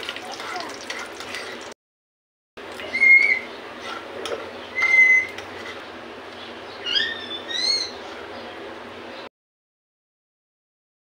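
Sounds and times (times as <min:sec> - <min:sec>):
fruits roasting in a frying pan: 0:00.0 - 0:01.8
steel spoon stirring: 0:00.1 - 0:01.7, 0:03.8 - 0:05.8
bird chirping: 0:02.8 - 0:03.7, 0:04.5 - 0:09.3
short high squeaks: 0:04.8 - 0:05.4.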